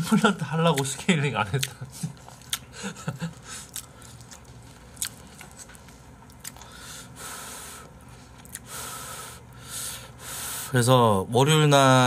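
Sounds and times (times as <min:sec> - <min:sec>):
person chewing: 0:00.7 - 0:06.9, 0:07.9 - 0:08.7.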